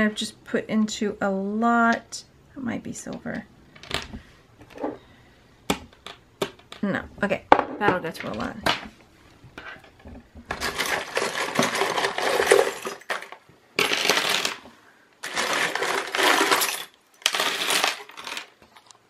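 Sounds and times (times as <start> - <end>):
jewelry clattering on a tabletop: 3.8 - 5.0, 9.6 - 18.8.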